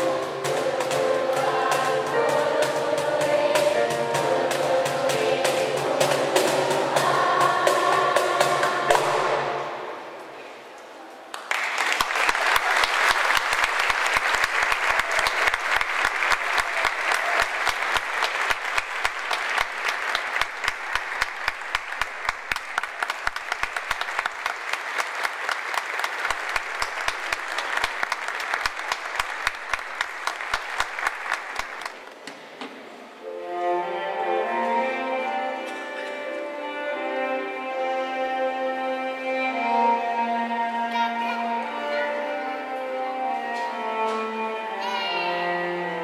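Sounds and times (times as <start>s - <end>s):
audience applauding: 11.3s - 32.1s.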